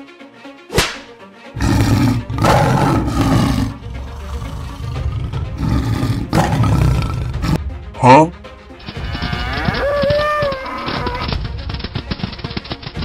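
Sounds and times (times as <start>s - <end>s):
background music: 0.0s - 13.0s
tiger roaring: 1.6s - 7.6s.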